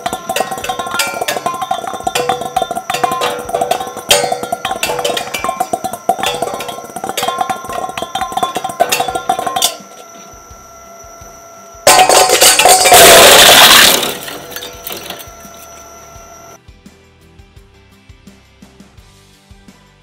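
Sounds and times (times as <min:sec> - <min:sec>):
loud crashing clatter: 0:00.0 - 0:10.1, 0:11.9 - 0:16.5
metal bowl clanging in shredder: 0:00.0 - 0:10.8, 0:11.8 - 0:16.6
shredder motor whine: 0:00.0 - 0:16.6.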